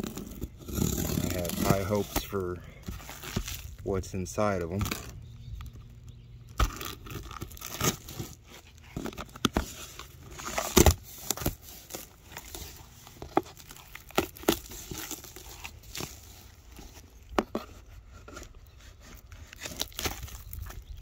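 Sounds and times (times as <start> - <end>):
cardboard flaps scraping: 0.0 - 3.8, 6.6 - 20.8
packing tape tearing: 0.0 - 3.8, 6.5 - 16.9, 19.3 - 20.8
plastic crinkling: 0.0 - 3.9, 6.6 - 17.4, 19.2 - 21.0.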